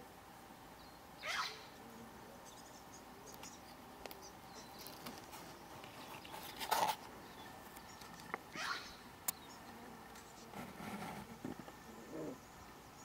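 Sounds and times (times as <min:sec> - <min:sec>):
squeaky animal calls: 0:01.2 - 0:01.6, 0:08.5 - 0:09.0.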